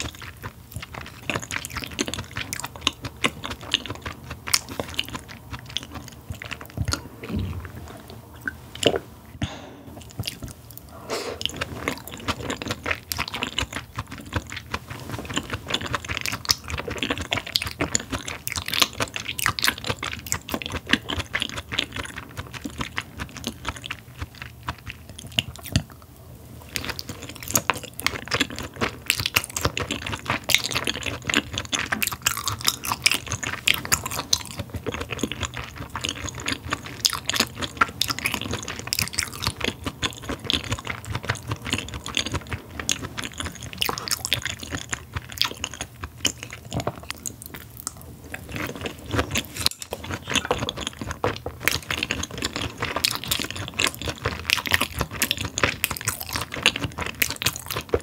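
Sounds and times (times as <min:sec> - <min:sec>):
person chewing raw meat: 0:00.0 - 0:58.0.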